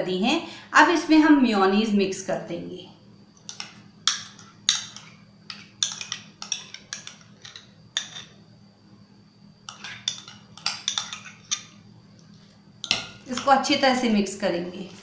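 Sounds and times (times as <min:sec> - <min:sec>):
metal spoon scraping bowl: 0:04.2 - 0:08.4.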